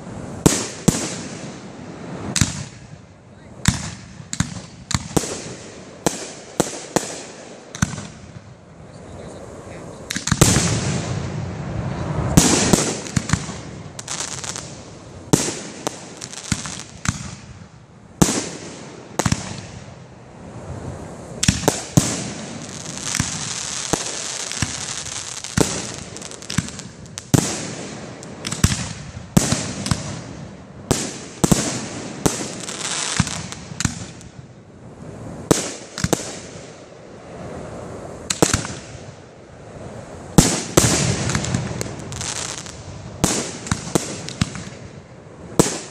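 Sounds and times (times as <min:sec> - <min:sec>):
crackling firework glitter: 0:00.0 - 0:45.9
firework shells bursting: 0:10.0 - 0:11.1, 0:12.4 - 0:19.9, 0:21.4 - 0:34.4, 0:38.2 - 0:39.1, 0:40.4 - 0:44.8.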